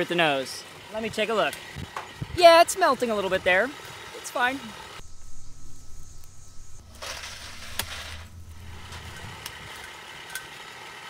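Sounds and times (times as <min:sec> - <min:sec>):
furnace air blast hissing: 0:04.8 - 0:09.9
low rumble: 0:05.0 - 0:09.8.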